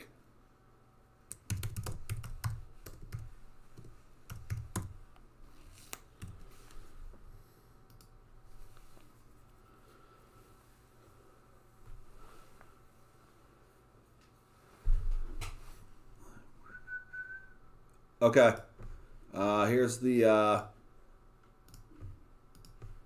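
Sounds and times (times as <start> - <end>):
keyboard typing: 1.3 - 5.0, 21.7 - 23.0.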